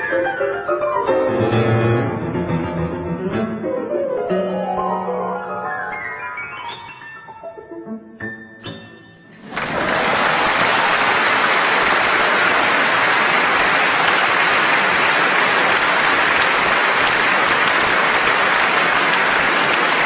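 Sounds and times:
piano notes: 0:00.0 - 0:09.7
audience applause: 0:09.4 - 0:20.0.

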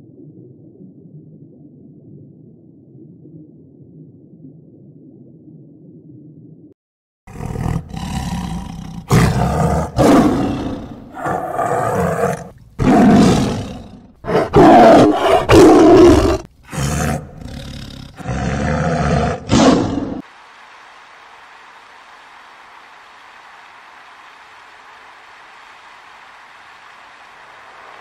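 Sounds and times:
lions roaring: 0:07.3 - 0:20.2.

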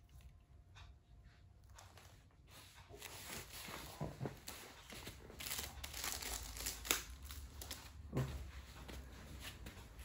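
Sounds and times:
grip wrap crinkling: 0:03.0 - 0:08.0.

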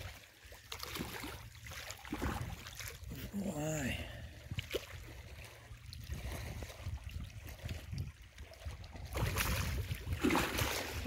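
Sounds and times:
fish splashing in water: 0:08.8 - 0:11.0.

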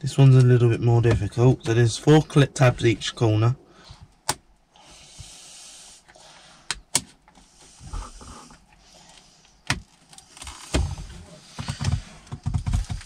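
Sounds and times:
plastic panel rustling and knocking: 0:09.7 - 0:13.0.

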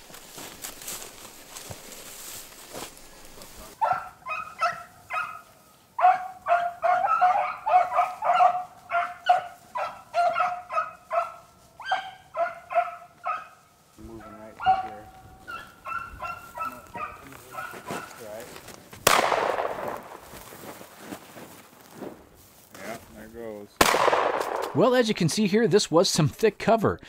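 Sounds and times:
dogs baying and yelping: 0:03.8 - 0:18.3.

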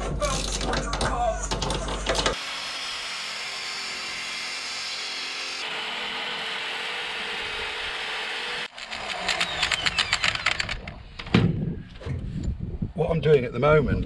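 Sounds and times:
die grinder on rusty steel: 0:02.1 - 0:10.8.

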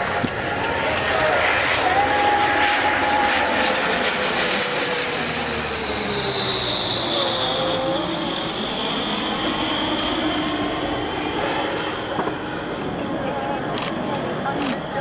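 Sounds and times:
aircraft engine whine passing: 0:00.0 - 0:15.0.

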